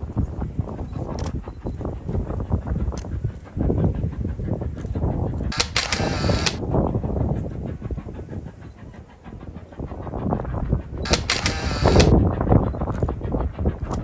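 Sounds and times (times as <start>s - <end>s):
distant steam train rumble: 0.0s - 14.0s
loud burst of noise: 5.5s - 6.6s, 11.1s - 12.1s.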